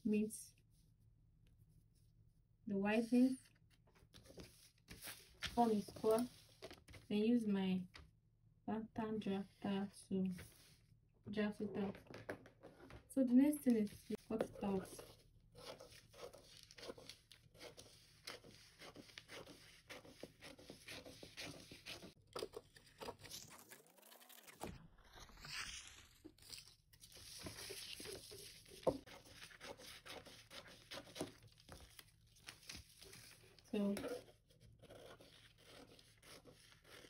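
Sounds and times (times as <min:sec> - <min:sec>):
paper rustling and crackling: 0:13.7 - 0:34.1
scissors snipping paper: 0:26.4 - 0:37.0.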